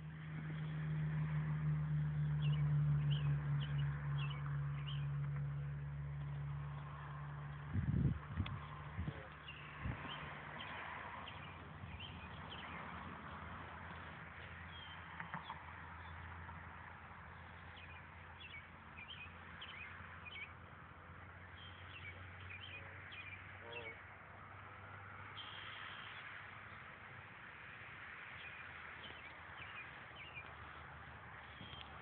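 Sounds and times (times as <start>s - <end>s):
small birds chirping: 2.2s - 6.9s, 8.4s - 13.0s, 13.9s - 16.2s, 17.3s - 20.6s, 21.4s - 24.0s, 25.3s - 26.4s, 28.2s - 32.0s.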